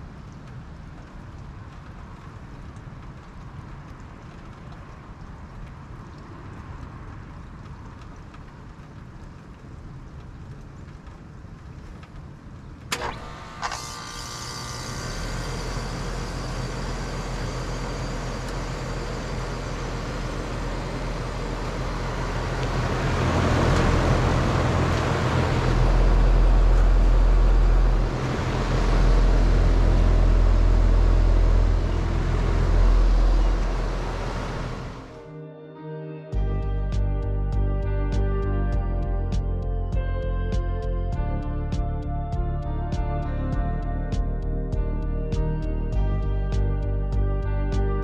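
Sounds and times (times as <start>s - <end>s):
compressor hum: 12.9s - 35.2s
fan air rushing: 12.9s - 35.2s.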